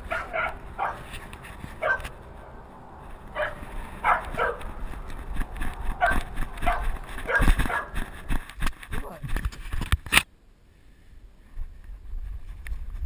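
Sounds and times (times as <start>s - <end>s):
dog barking sharply: 0.1s - 1.0s, 1.8s - 2.1s, 3.4s - 4.6s, 6.0s - 8.0s.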